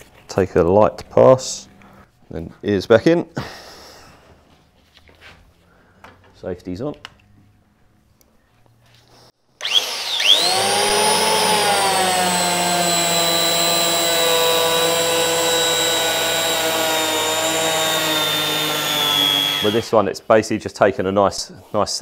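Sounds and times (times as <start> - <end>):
sander motor whining: 9.6 - 20.0.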